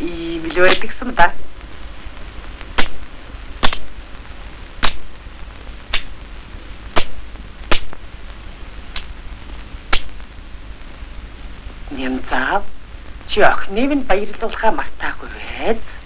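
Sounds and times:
film soundtrack hum and hiss: 0.0 - 16.0
sharp single clicks: 2.7 - 3.9, 4.8 - 5.1, 5.9 - 6.2, 7.0 - 8.0, 8.9 - 9.1, 9.9 - 10.2.

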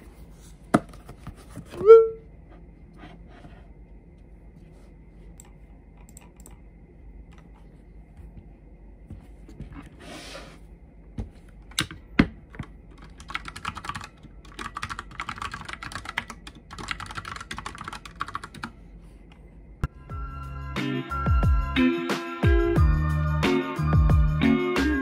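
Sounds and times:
mechanical keyboard typing: 11.7 - 18.7.

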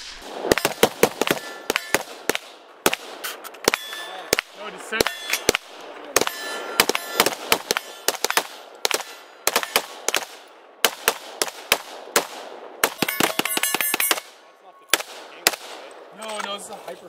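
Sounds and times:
rapid gunshots: 0.0 - 16.1
steel targets ringing: 0.5 - 2.1, 3.6 - 5.5, 6.2 - 9.9, 12.9 - 14.3.

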